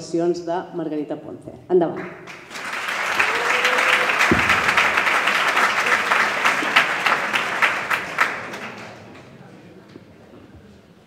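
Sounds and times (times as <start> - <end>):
audience applauding: 2.2 - 9.6
low thump: 4.2 - 5.1.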